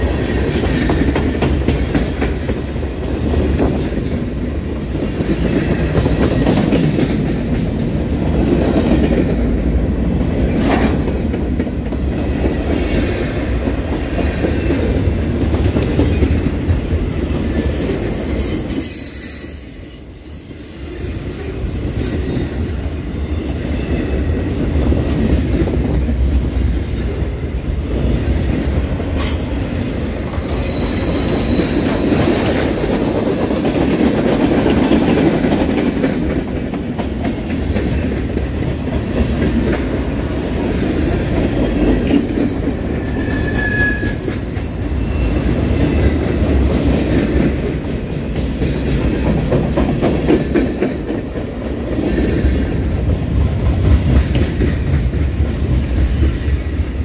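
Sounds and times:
steel wheels on rail: 0:00.0 - 0:57.0
high-pitched wheel squeal: 0:11.4 - 0:13.4, 0:16.4 - 0:24.2, 0:28.6 - 0:34.3, 0:42.8 - 0:46.2.

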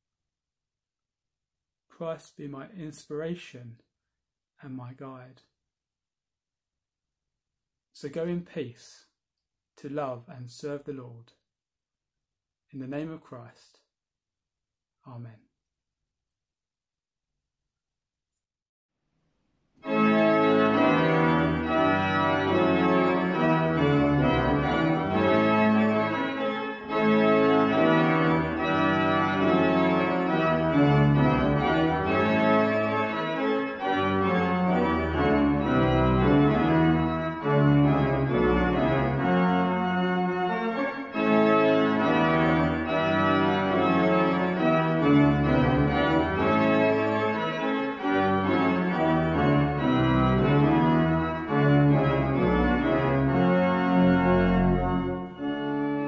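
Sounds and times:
organ chords: 0:19.8 - 0:56.0.

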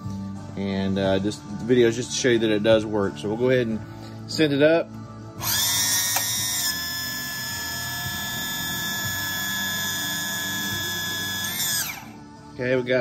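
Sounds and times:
electric motor and pump whining: 0:05.4 - 0:12.3.

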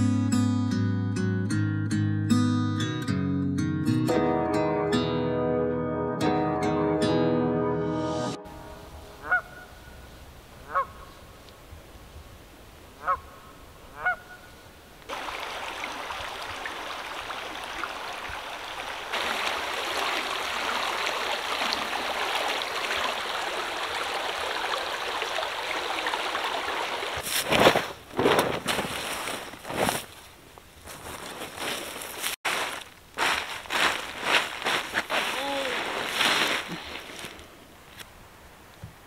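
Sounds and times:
creek flowing: 0:15.1 - 0:27.3, 0:32.5 - 0:38.3
blanket being shaken: 0:33.5 - 0:37.3.

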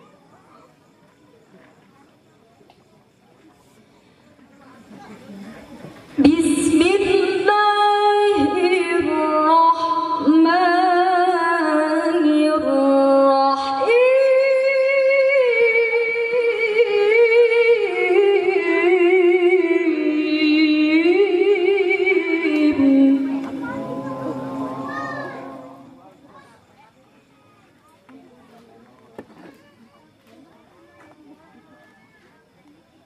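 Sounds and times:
woman chanting melodically: 0:06.2 - 0:26.1.

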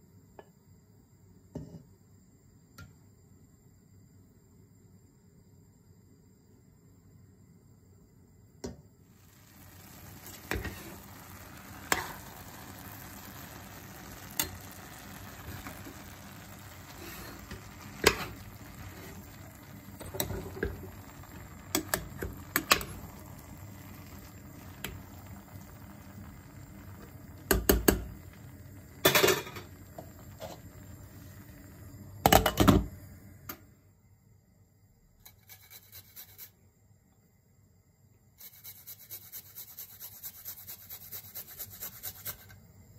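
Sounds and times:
steady cooking hiss: 0:00.0 - 0:42.9
utensil stirring in a pot: 0:09.2 - 0:31.7, 0:35.3 - 0:36.5, 0:38.4 - 0:42.6.

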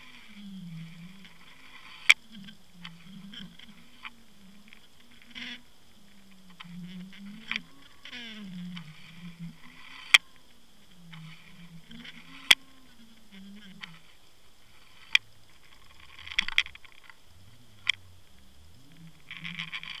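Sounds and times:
low wavering hum: 0:00.0 - 0:20.0
sharp underwater clicks: 0:08.7 - 0:10.4, 0:14.8 - 0:20.0.

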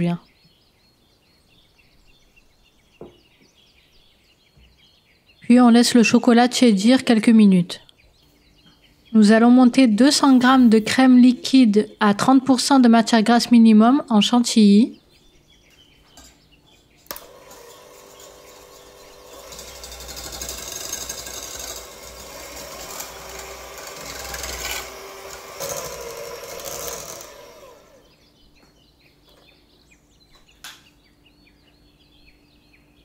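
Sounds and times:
electric mixer whipping cream: 0:17.1 - 0:28.2.

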